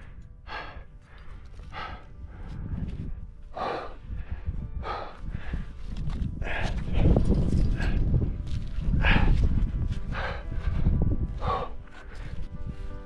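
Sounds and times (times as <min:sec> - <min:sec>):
person breathing hard: 0:00.0 - 0:08.2, 0:08.8 - 0:12.9
wind on the microphone: 0:00.0 - 0:13.0.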